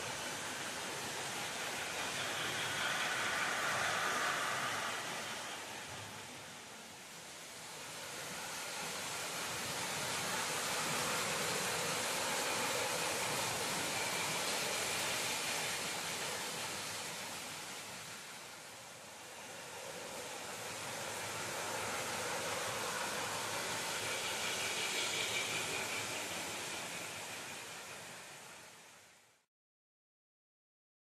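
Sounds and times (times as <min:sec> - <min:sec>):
model train rumbling on track: 0:00.0 - 0:29.2.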